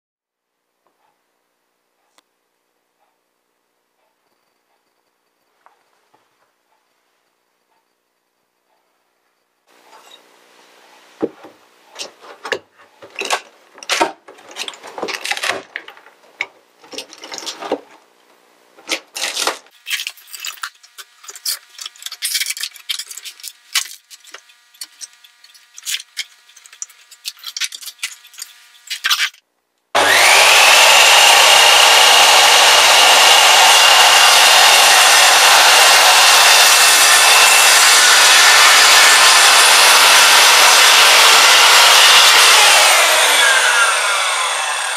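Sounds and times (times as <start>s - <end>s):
wood cracking and clattering: 12.0s - 18.0s
power tool whining: 19.2s - 29.4s, 30.0s - 44.9s.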